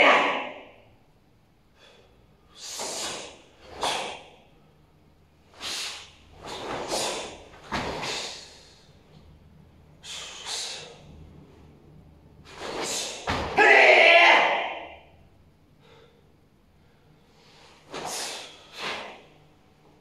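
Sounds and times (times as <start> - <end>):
forceful hissing breaths: 1.8 - 4.5, 5.4 - 9.0, 9.8 - 11.3, 17.1 - 19.3
swish of clothing: 5.5 - 8.6.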